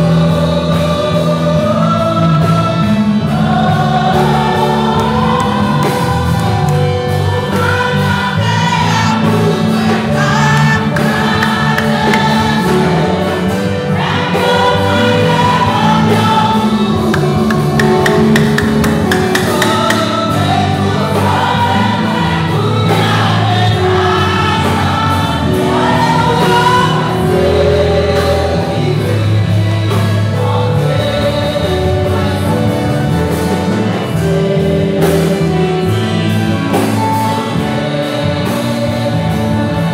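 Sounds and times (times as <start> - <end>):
choir and congregation singing: 0.0 - 39.9
low accompanying notes: 16.2 - 21.1.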